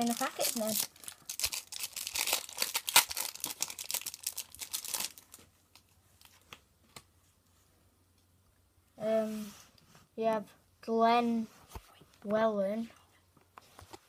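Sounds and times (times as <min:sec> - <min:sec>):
foil packet tearing and crinkling: 0:00.0 - 0:05.4.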